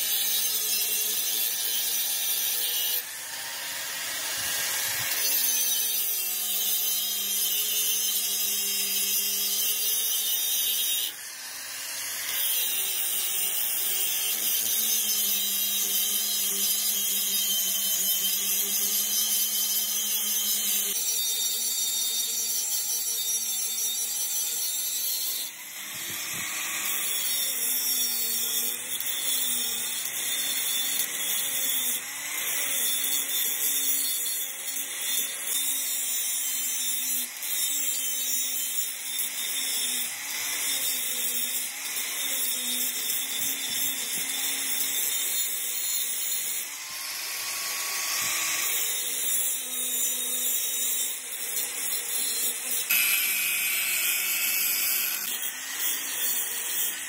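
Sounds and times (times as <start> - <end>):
angle grinder grinding metal: 0.0 - 57.0.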